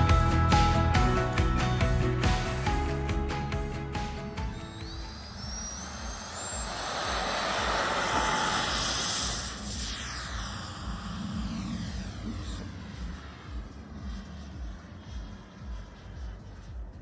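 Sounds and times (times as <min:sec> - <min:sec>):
electric ducted fan whine: 0:04.2 - 0:17.0.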